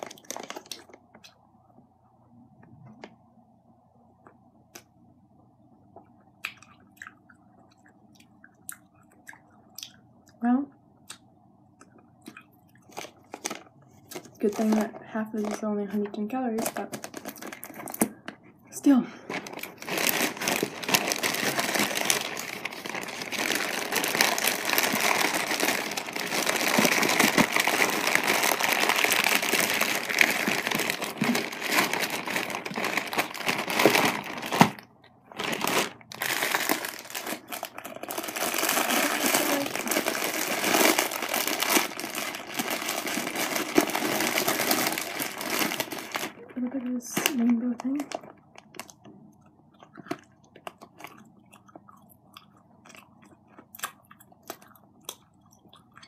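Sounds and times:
plastic bag crinkling: 0.0 - 1.3, 12.8 - 49.1, 49.8 - 51.8.

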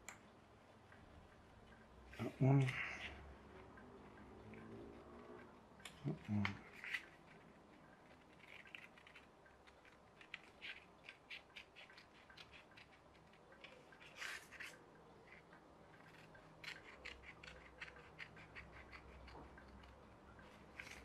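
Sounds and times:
scissors snipping paper: 5.8 - 15.4, 16.0 - 20.0, 20.6 - 21.0.

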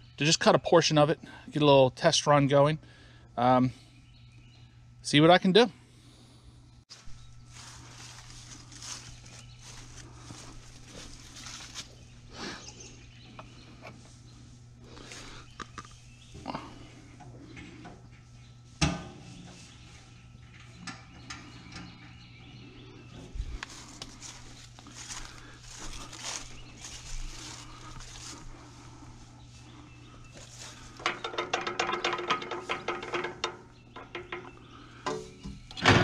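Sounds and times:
footsteps on grass and leaves: 6.9 - 15.6, 23.2 - 31.0.

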